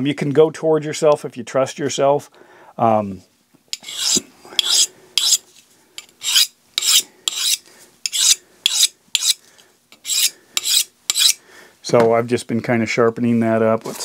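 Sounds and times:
knife scraping on honing rod: 0:03.8 - 0:05.4, 0:06.0 - 0:09.4, 0:10.0 - 0:11.4.

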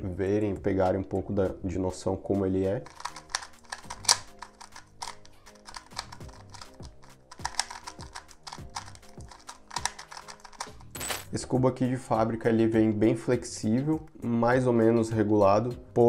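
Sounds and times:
plastic cube clacking: 0:02.8 - 0:11.3.

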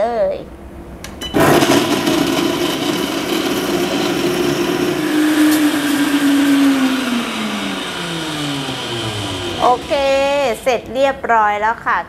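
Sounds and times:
blender motor whining: 0:01.2 - 0:10.7.

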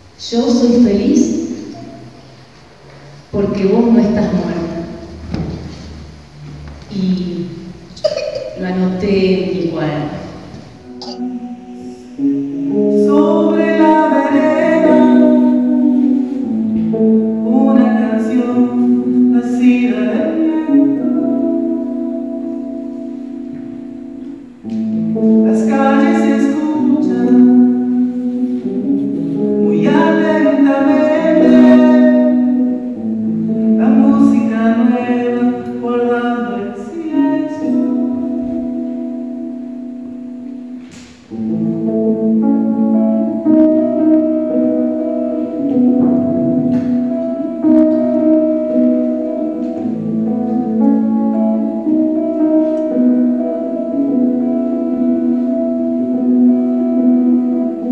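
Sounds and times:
acoustic guitar: 0:00.0 - 0:57.9
man singing: 0:10.9 - 0:16.4, 0:25.4 - 0:27.8, 0:29.6 - 0:32.5, 0:33.8 - 0:38.4.

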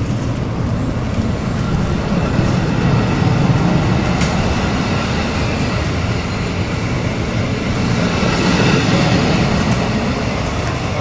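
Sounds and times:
train wheels rolling on rails: 0:00.0 - 0:11.0.

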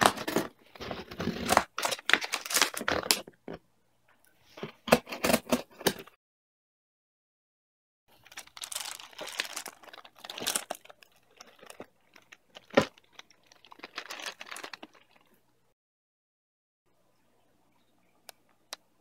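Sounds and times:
packing crinkling and tearing: 0:00.0 - 0:03.4, 0:08.1 - 0:15.4.

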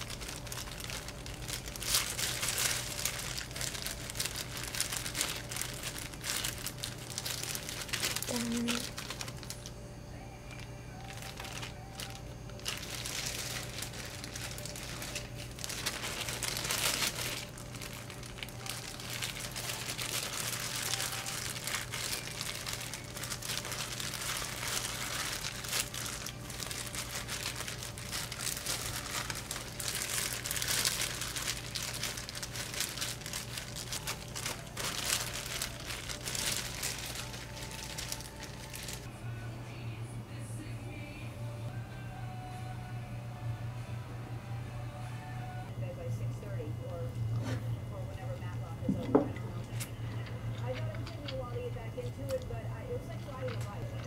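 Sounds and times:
plastic gloves crinkling: 0:00.0 - 0:39.1, 0:48.2 - 0:54.0
steady low hum: 0:00.0 - 0:54.0.

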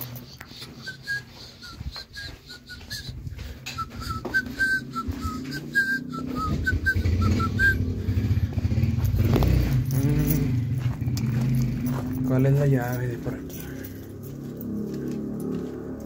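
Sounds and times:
person whistling a tune: 0:00.5 - 0:08.3.

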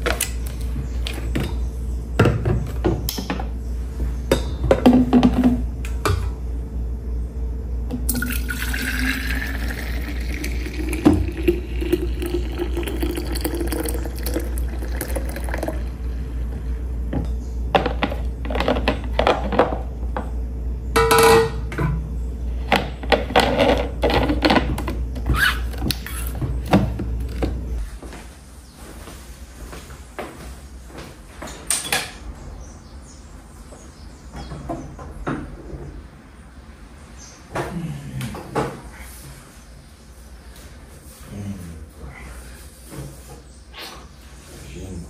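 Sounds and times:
steady low hum: 0:00.0 - 0:45.0
water running into container: 0:08.1 - 0:16.0.

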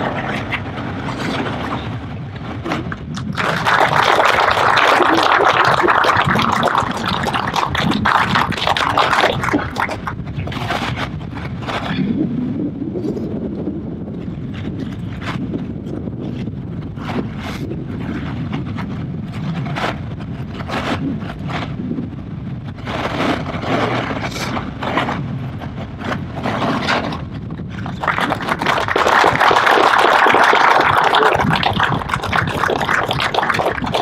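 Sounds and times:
wind rumble on microphone: 0:00.0 - 0:34.0
audience applause: 0:03.2 - 0:10.2, 0:27.9 - 0:34.0.

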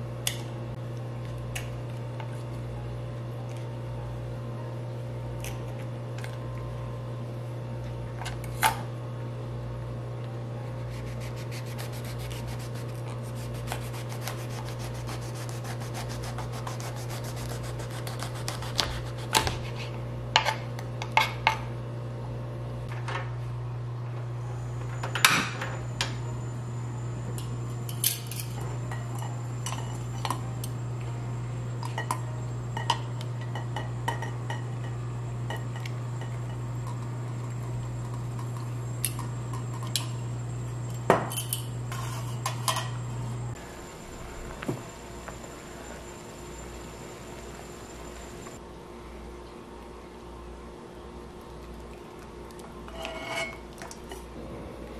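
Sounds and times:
steady low hum: 0:00.0 - 0:54.9.

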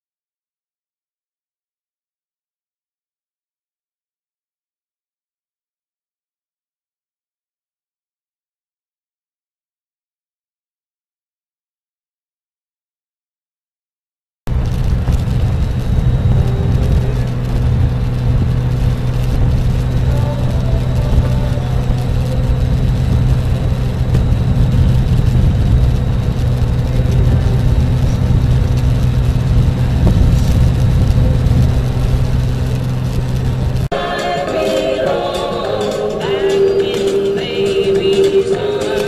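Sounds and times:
wind noise: 0:14.5 - 0:34.0
motorcycle engine hum: 0:14.5 - 0:39.0
road noise: 0:14.5 - 0:39.0.

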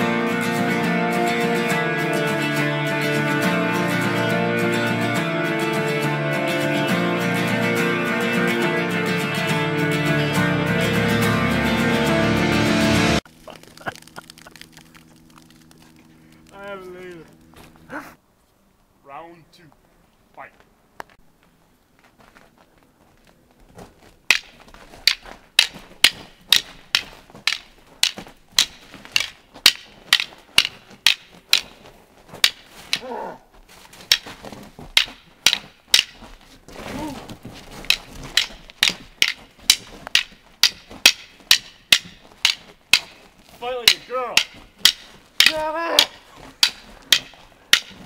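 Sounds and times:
wooden sticks clacking: 0:13.3 - 0:17.4, 0:24.2 - 0:33.4, 0:34.0 - 0:48.0
short voice sounds: 0:17.9 - 0:18.2, 0:33.0 - 0:33.4, 0:36.9 - 0:37.3, 0:45.4 - 0:46.5.

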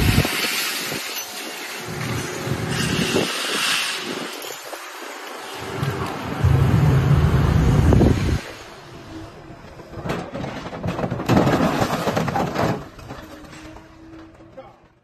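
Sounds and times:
heavy machine engine rumbling: 0:05.6 - 0:11.3.

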